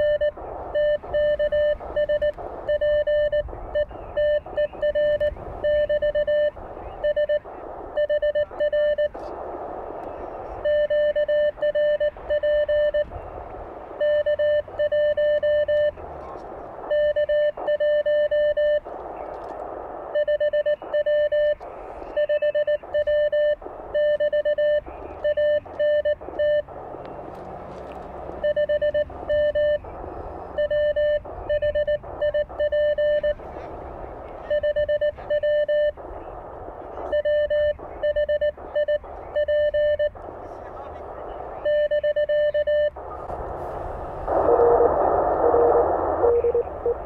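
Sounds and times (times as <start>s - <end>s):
morse code tone: 0.0s - 7.4s, 8.0s - 9.2s, 10.6s - 13.1s, 14.0s - 16.0s, 16.9s - 18.8s, 20.2s - 26.7s, 28.4s - 29.9s, 30.5s - 33.4s, 34.5s - 36.0s, 37.0s - 40.2s, 41.6s - 43.0s, 44.3s - 47.0s
radio receiver hiss: 0.0s - 47.0s.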